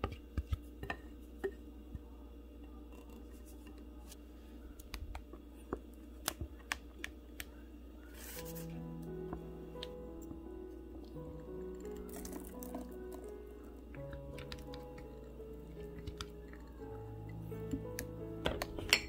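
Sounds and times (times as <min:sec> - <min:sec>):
low steady hum: 0:00.0 - 0:19.0
soft background music: 0:05.9 - 0:19.0.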